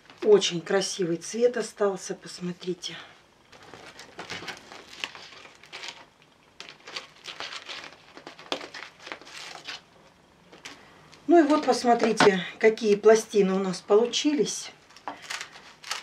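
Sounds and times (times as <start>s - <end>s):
crinkling and rustling: 3.5s - 10.8s, 14.8s - 16.0s.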